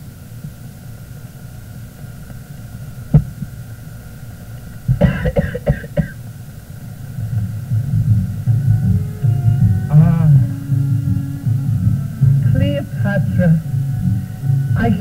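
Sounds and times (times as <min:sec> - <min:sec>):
film soundtrack hum: 0:00.0 - 0:15.0
man coughing: 0:05.0 - 0:06.2
low rumble: 0:06.8 - 0:15.0.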